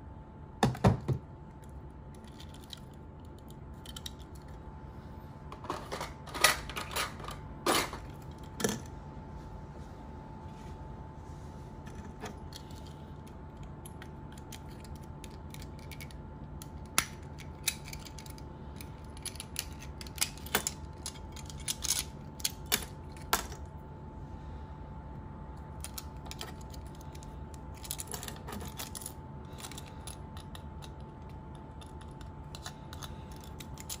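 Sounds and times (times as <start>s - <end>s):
toy car parts clicking and clacking: 14.3s - 23.6s, 31.8s - 34.0s.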